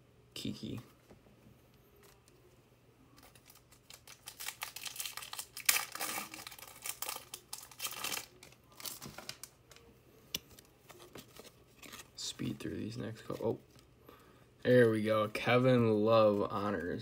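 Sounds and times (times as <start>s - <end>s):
wrapper tearing and crinkling: 3.2s - 9.8s.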